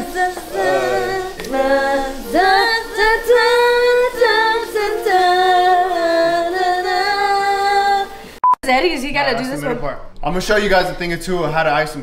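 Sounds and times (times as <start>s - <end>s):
woman singing long held notes: 0.0s - 8.4s.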